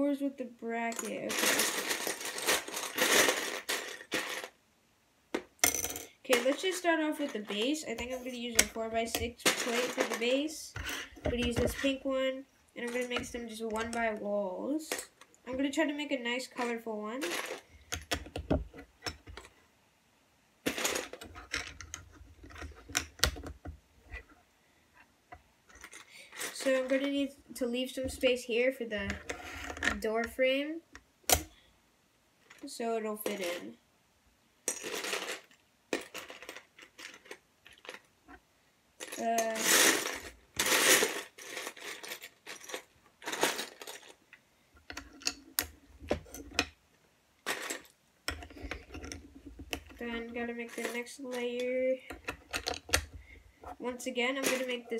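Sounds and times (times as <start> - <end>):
plastic bricks rattling: 1.1 - 4.6, 5.4 - 12.2, 16.6 - 19.4, 39.0 - 44.2.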